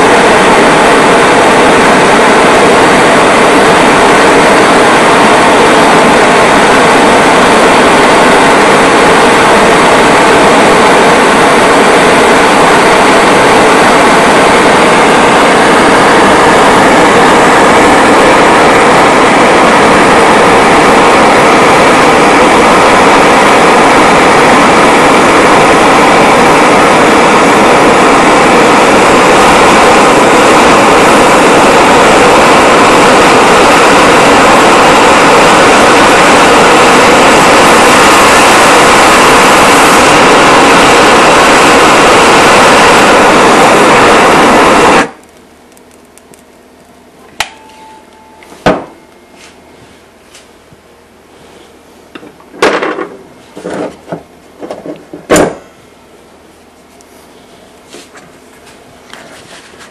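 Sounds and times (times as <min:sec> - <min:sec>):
gas torch hissing: 0:00.0 - 0:45.4.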